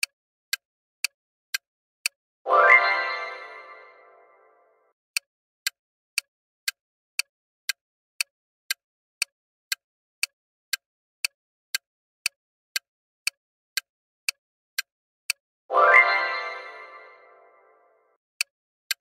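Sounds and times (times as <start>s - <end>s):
clock-like timer ticks: 0.0s - 2.2s, 5.2s - 15.4s, 18.4s - 19.0s.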